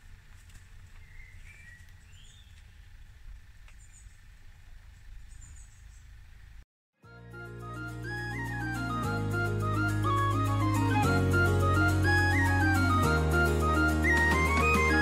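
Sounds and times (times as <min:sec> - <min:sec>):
birds chirping: 0:00.0 - 0:06.6
low steady rumble: 0:00.0 - 0:06.6.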